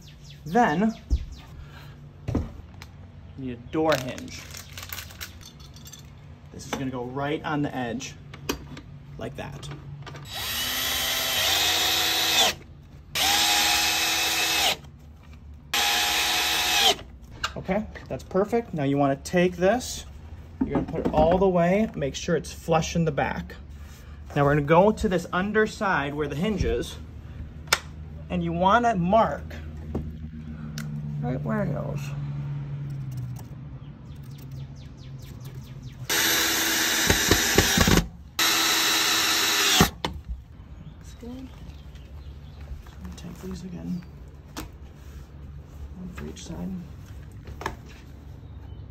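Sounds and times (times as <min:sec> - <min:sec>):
cordless drill driving screws: 0:10.2 - 0:12.6, 0:13.2 - 0:14.9, 0:15.7 - 0:17.1, 0:36.1 - 0:40.0.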